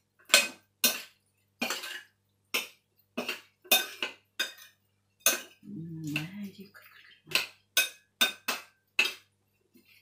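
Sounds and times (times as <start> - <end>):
spoon and fork clinking bowl: 0.2 - 9.3.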